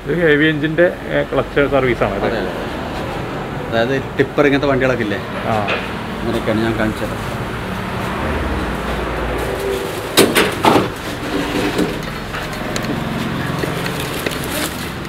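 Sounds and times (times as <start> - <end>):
metallic clanks: 5.2 - 6.5.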